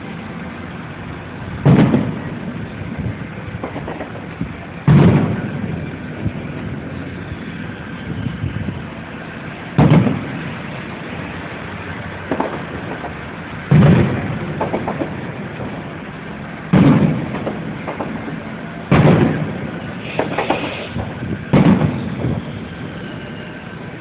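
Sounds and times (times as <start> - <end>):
faint firework pops: 1.6 - 2.3, 3.6 - 5.6, 9.8 - 10.4, 12.2 - 15.8, 16.7 - 18.2, 18.9 - 22.4
firework booms with rumble: 1.6 - 8.9, 9.6 - 23.5.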